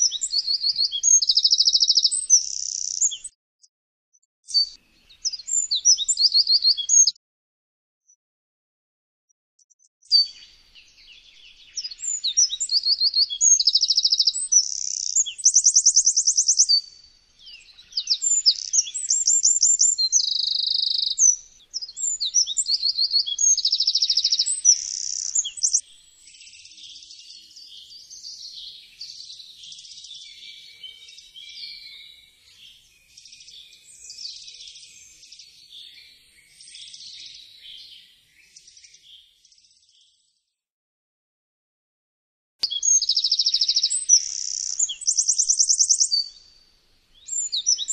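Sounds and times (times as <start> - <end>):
scratchy bird twittering: 0.0 - 3.3, 11.3 - 16.8, 17.7 - 25.8, 42.6 - 46.3
wren singing trills: 0.0 - 3.3, 4.5 - 7.2, 10.0 - 39.2, 42.6 - 47.9.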